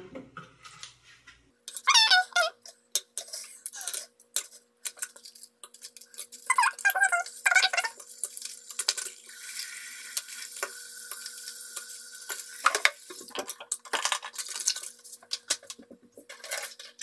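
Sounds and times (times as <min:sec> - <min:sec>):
water running into a sink: 0:07.2 - 0:13.8
brushes clattering in a sink: 0:12.3 - 0:17.0.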